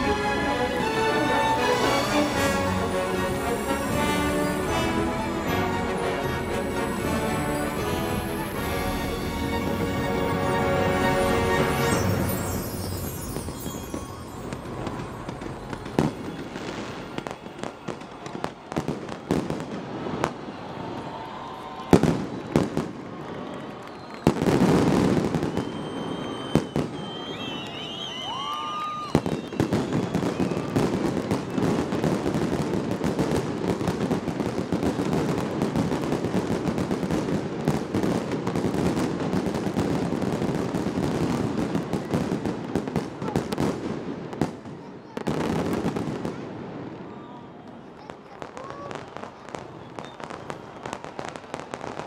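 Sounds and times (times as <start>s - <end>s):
firework bangs: 0.0s - 21.1s, 21.8s - 23.1s, 24.2s - 47.2s
firework whistles: 0.0s - 22.8s, 23.8s - 32.7s, 49.0s - 52.0s
firework crackling: 0.0s - 46.8s.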